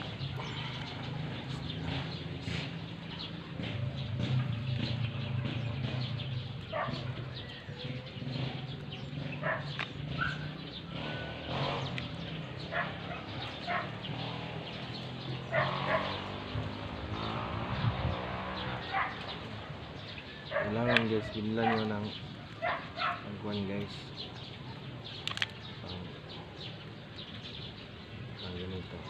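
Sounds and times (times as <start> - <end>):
bird chirp: 0.0 - 29.0
dog-like animal calls: 6.7 - 8.0, 9.4 - 11.7, 12.6 - 14.2, 15.4 - 16.8, 18.7 - 19.7, 20.4 - 23.3.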